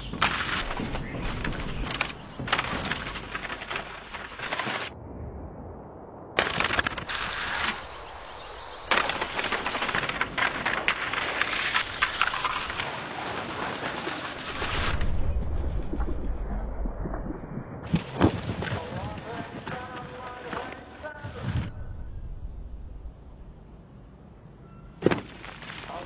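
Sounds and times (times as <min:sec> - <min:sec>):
skis scraping over stone: 0:00.0 - 0:04.9, 0:06.4 - 0:15.2, 0:17.9 - 0:21.7, 0:25.0 - 0:26.0
low rumble: 0:00.9 - 0:12.2, 0:14.5 - 0:17.9, 0:21.2 - 0:24.6.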